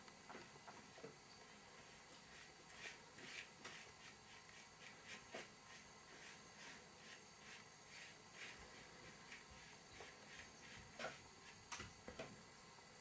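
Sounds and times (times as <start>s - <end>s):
paintbrush scratching: 1.8s - 11.6s.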